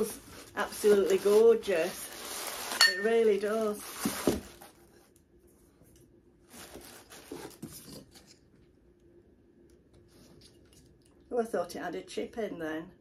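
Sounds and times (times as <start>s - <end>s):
soft rustle: 0.0s - 8.3s.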